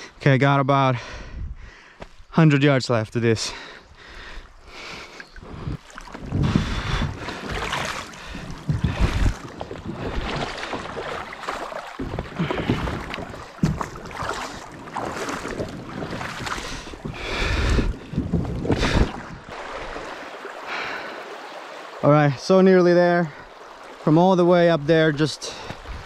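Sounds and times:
wind buffeting microphone: 1.2s - 1.8s, 5.4s - 11.3s, 12.0s - 20.0s, 25.7s - 26.0s
splashing footsteps: 4.8s - 21.0s, 25.4s - 26.0s
kayak hull scraping and sloshing: 4.8s - 22.0s, 25.5s - 26.0s.

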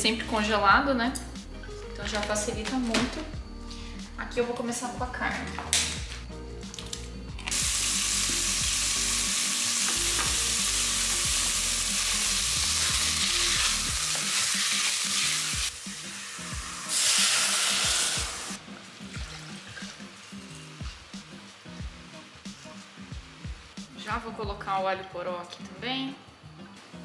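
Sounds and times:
meat sizzling in oil: 7.4s - 23.8s.

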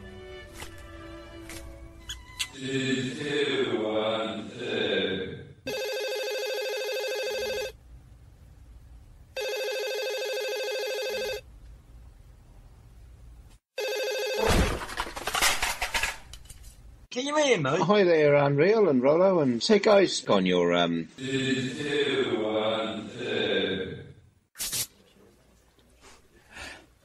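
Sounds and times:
telephone ringing: 5.7s - 7.8s, 9.4s - 11.5s, 13.8s - 14.5s.

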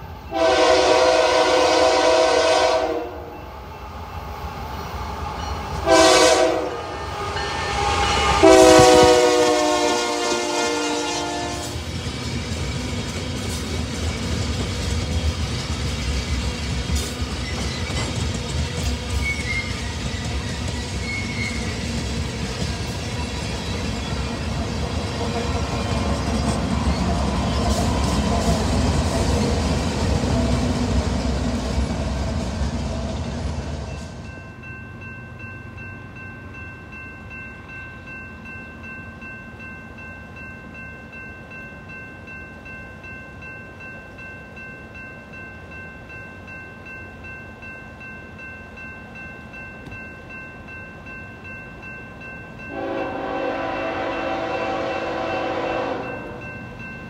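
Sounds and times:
diesel locomotives rumbling past: 0.0s - 57.0s
steady chord of high tones: 33.9s - 57.0s.

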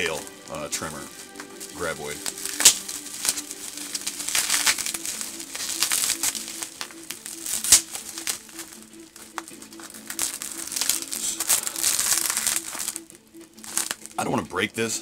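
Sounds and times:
bubble wrap crinkling: 0.0s - 14.6s.

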